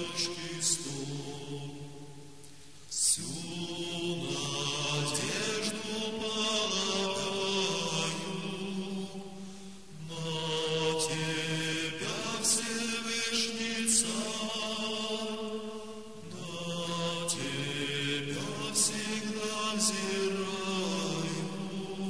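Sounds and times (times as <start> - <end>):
man chanting slowly: 0.0 - 2.0, 16.2 - 22.0.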